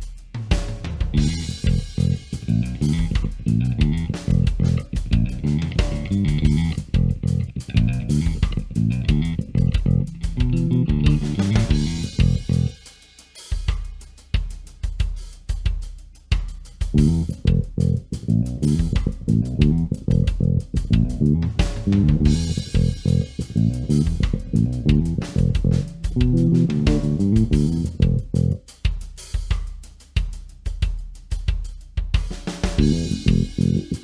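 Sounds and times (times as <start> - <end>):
drum beat: 0.0 - 34.0
electric bass played fingerstyle: 1.1 - 12.8, 16.9 - 28.6, 32.8 - 34.0.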